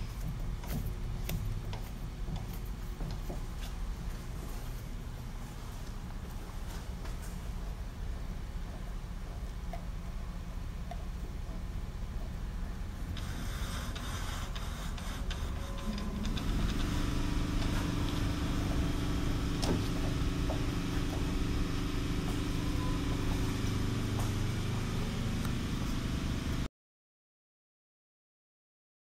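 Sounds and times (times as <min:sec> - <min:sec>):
metal lathe humming: 0:13.1 - 0:26.7.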